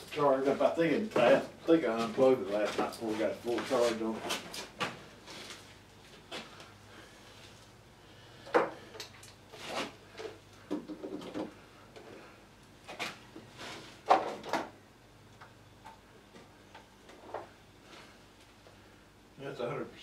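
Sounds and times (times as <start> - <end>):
objects knocking and clunking: 8.5 - 9.1, 10.1 - 12.1, 13.4 - 14.8.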